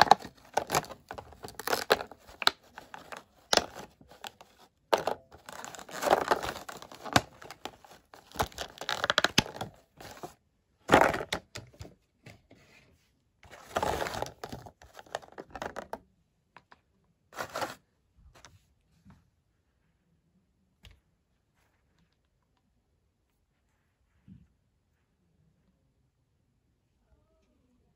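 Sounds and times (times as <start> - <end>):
plastic packaging crinkling: 0.0 - 10.3, 10.9 - 11.4, 13.5 - 16.0.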